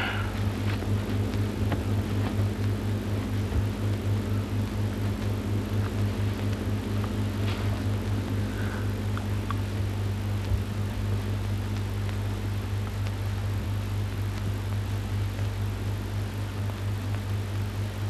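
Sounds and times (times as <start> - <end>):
hiss: 0.0 - 0.7
low electrical hum: 0.0 - 18.0.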